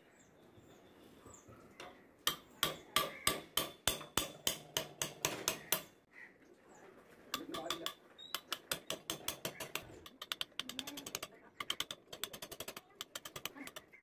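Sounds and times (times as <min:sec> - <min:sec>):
chisel cutting wood clicks: 0:07.3 - 0:14.0.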